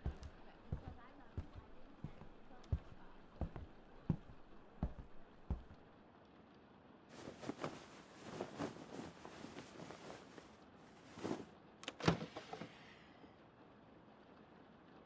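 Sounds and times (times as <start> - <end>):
rustling and handling noise: 0.0 - 5.8, 7.1 - 11.5.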